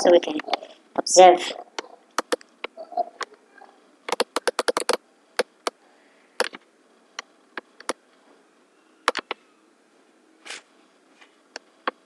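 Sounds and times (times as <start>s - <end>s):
mouse and keyboard clicks: 1.8s - 3.3s, 4.1s - 5.0s, 9.1s - 9.4s.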